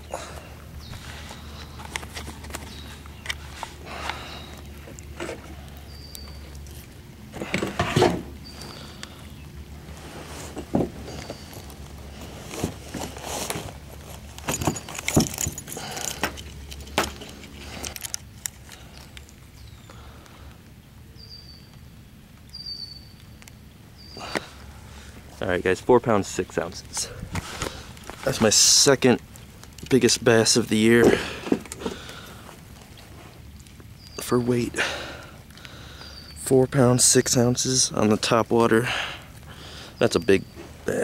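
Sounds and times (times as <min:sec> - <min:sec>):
handling knocks and clicks: 0:10.5 - 0:19.4
high bird chirps: 0:22.5 - 0:23.4.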